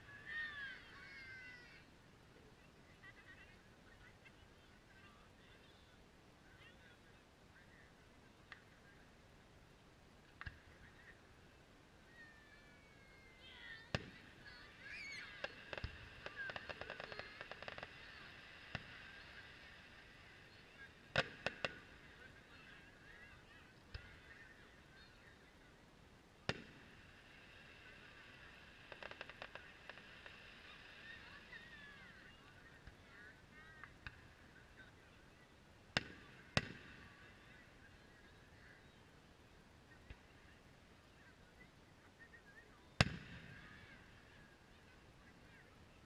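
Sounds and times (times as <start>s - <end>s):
fireworks crackling: 13.2s - 25.1s, 26.3s - 35.1s
distant fireworks bangs: 13.9s - 22.7s, 26.4s - 31.6s, 35.9s - 37.3s, 43.0s - 44.3s.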